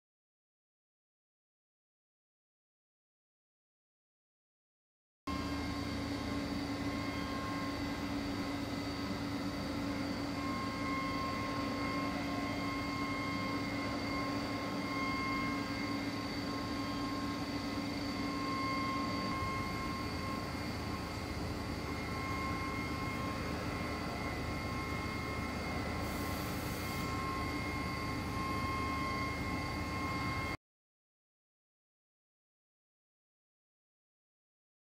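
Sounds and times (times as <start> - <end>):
milling spindle whine: 5.3 - 30.6.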